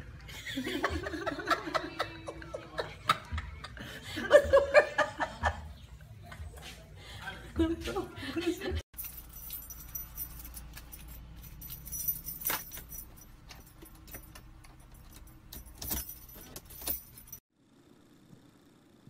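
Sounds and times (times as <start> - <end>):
car keys jangling and clicking: 9.0 - 17.4.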